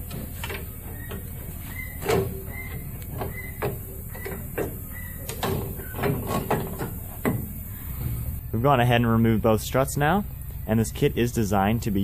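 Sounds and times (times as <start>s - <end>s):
metal suspension parts knocking: 0.0s - 8.3s
steady low hum: 0.0s - 12.0s.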